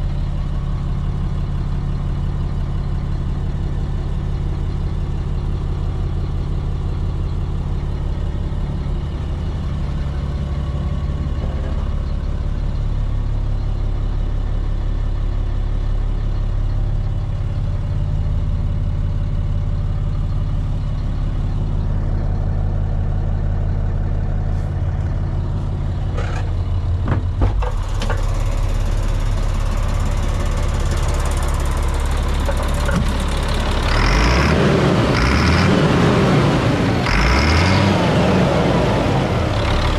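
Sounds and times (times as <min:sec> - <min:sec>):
truck engine idling: 0:00.0 - 0:39.9
sharp clicks and knocks: 0:26.1 - 0:28.5, 0:32.3 - 0:33.4.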